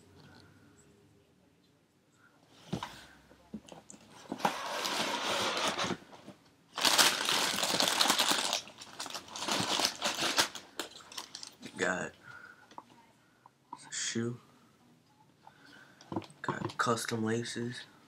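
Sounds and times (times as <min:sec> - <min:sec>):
tissue paper rustling: 0:06.8 - 0:11.5.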